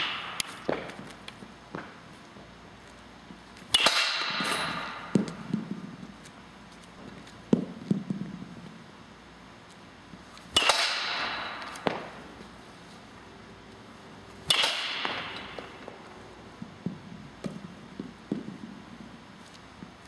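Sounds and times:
bat cracking a ball: 0.0s - 2.0s, 3.6s - 6.3s, 10.4s - 12.6s, 14.4s - 18.9s.

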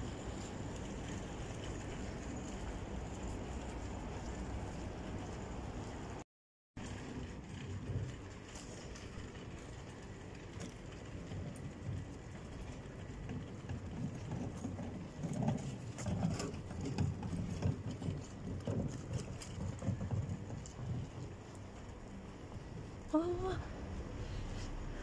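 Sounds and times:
city traffic hum: 0.0s - 6.2s, 17.7s - 25.0s.

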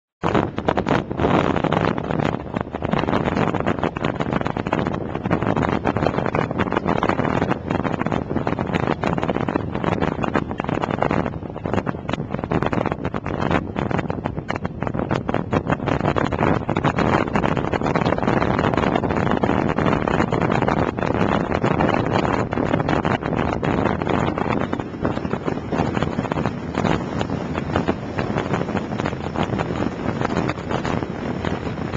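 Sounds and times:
wind buffeting microphone: 0.2s - 31.9s
motorcycle engine: 17.2s - 31.9s.

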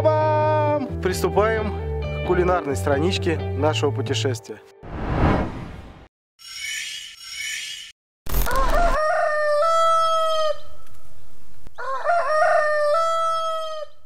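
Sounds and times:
rooster crowing: 8.5s - 10.8s, 11.7s - 14.0s.

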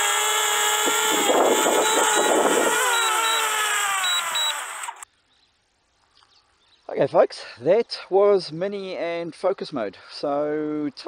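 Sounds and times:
drone propellers whining: 0.0s - 5.0s.

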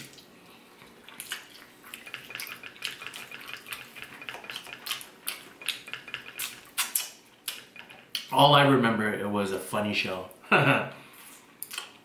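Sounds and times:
wet chewing and lip smacks: 0.1s - 8.3s, 11.6s - 12.0s.

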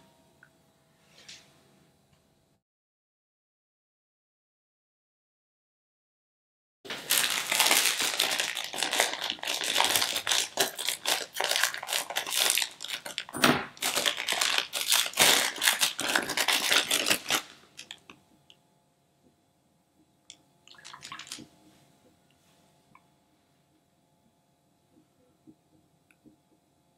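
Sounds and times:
plastic pouch crinkling and tearing: 6.9s - 18.1s, 20.7s - 21.5s.

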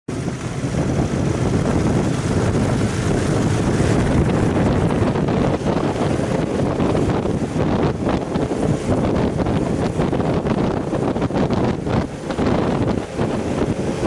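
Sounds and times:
motorcycle running: 0.1s - 14.0s
wind rumbling on microphone: 0.1s - 14.0s.

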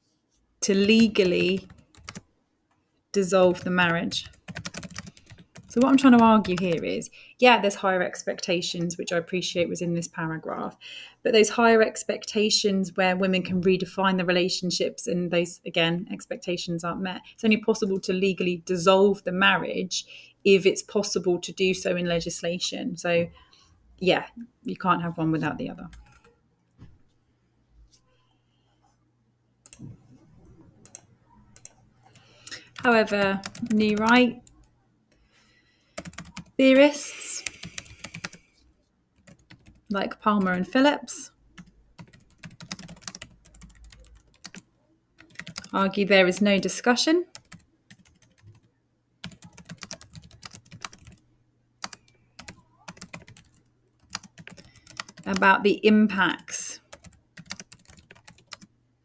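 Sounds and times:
keyboard key presses: 3.6s - 6.8s, 41.6s - 44.6s, 45.2s - 45.7s, 49.2s - 51.2s, 51.8s - 55.4s, 56.9s - 58.7s.

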